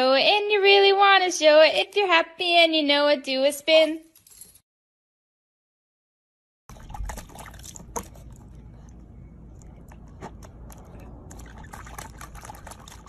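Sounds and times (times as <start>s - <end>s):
puppy splashing water: 6.7s - 13.0s.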